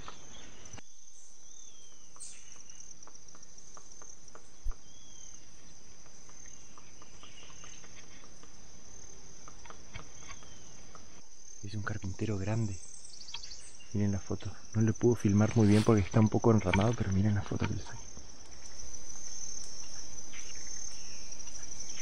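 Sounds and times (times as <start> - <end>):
insect chorus: 0.0 - 22.0
woodpecker knocking on wood: 2.2 - 11.2, 14.8 - 22.0.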